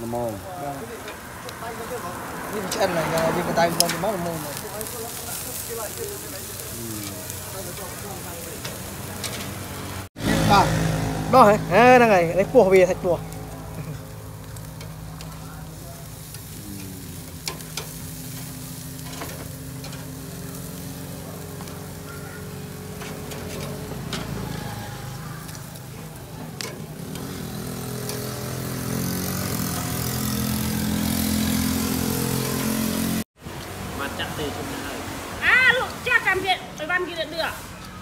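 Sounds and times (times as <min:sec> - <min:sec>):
faint hiss: 0:00.0 - 0:09.2.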